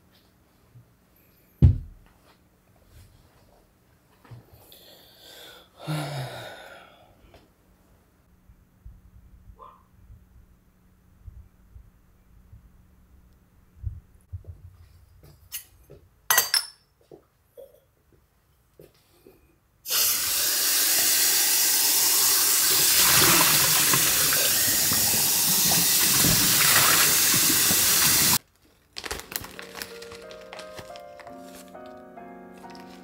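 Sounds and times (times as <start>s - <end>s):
faucet running into metal cup: 19.9s - 28.4s.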